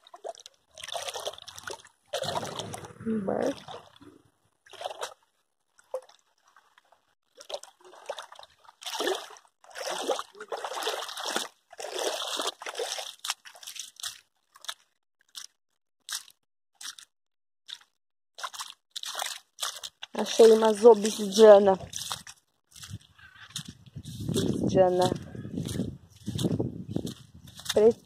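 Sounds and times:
footsteps splashing through muddy water: 0.0s - 17.1s, 17.7s - 28.0s.

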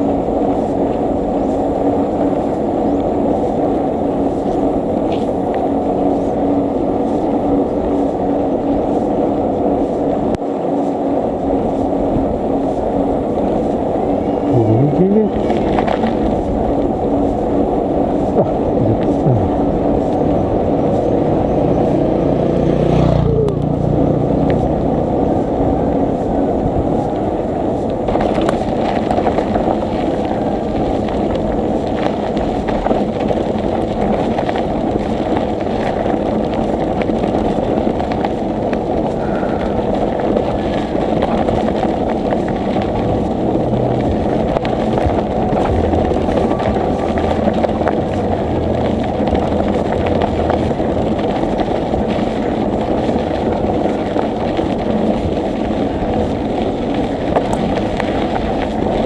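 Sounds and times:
wind and road noise: 0.0s - 59.0s
brief falling tone: 39.2s - 40.3s.

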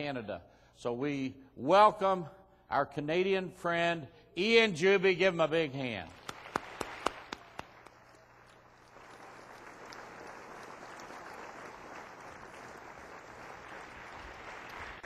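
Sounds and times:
audience applause: 6.2s - 15.0s.

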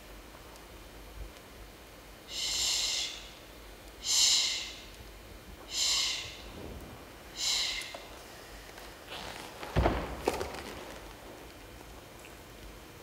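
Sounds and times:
person breathing hard: 2.3s - 3.3s, 4.0s - 4.8s, 5.7s - 6.4s, 7.3s - 8.6s.

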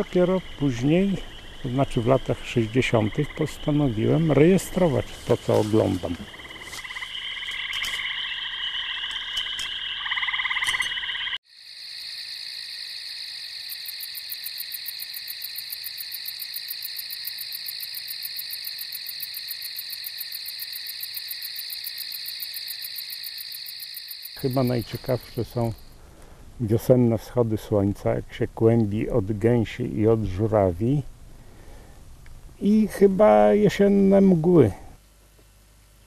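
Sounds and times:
frogs calling with pulsed trills: 5.9s - 26.0s
high-pitched insect chirring: 6.2s - 26.0s.

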